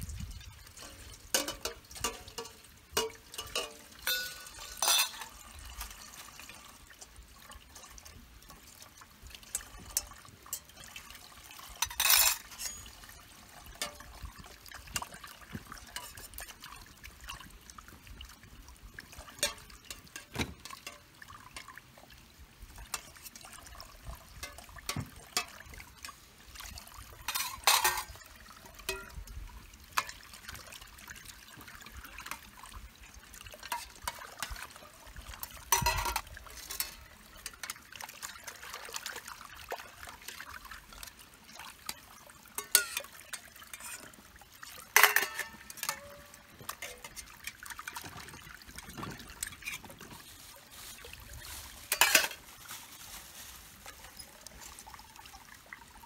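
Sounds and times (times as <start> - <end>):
water trickling into metal pot: 0.0 - 56.0
metal pot knocks and clatters: 0.1 - 17.5, 18.9 - 21.9, 22.8 - 30.2, 33.5 - 39.0, 40.3 - 44.2, 44.8 - 50.2, 51.9 - 52.4
pot scrubbed by hand: 0.8 - 8.7, 27.2 - 28.2, 42.6 - 44.2, 44.9 - 54.3.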